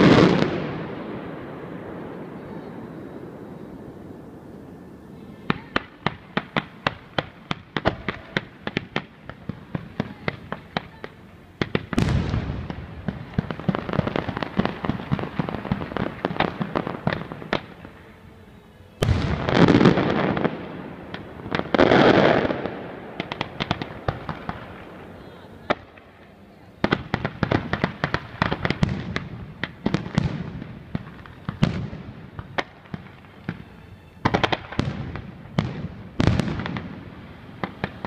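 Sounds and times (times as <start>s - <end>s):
loud booming blasts: 0.0s - 4.7s, 5.3s - 18.0s, 19.0s - 26.0s, 34.2s - 38.0s
firework bangs: 0.0s - 38.0s
firework shells bursting and crackling: 0.0s - 38.0s.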